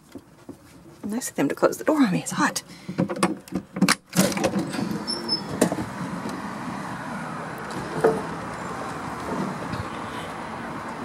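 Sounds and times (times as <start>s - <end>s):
outdoor background noise: 0.0s - 11.0s
door opening: 3.1s - 6.4s.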